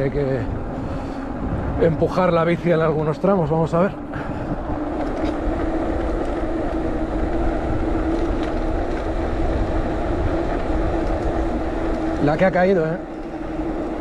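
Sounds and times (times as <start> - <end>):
electric bike motor droning: 0.0 - 14.0
wind rumble on microphone: 0.0 - 14.0.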